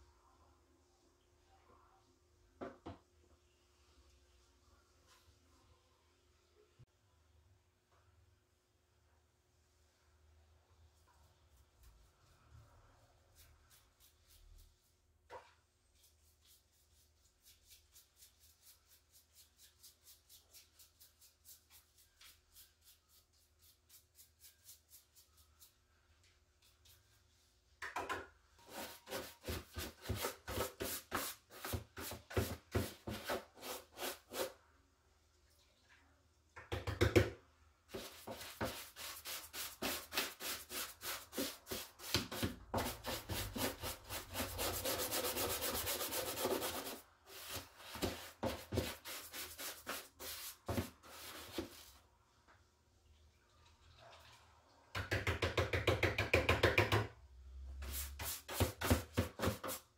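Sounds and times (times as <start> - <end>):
brush scrubbing plastic: 13.2 - 26.0, 37.9 - 52.0.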